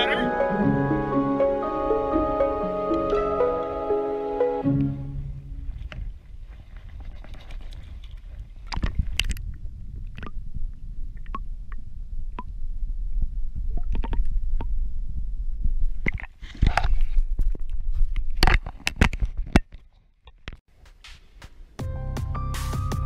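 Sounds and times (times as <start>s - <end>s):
water splashing: 2.9s - 10.4s.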